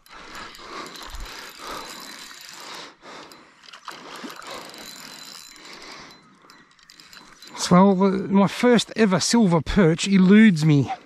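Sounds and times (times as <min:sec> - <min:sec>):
fishing reel whirring: 0:00.0 - 0:09.0.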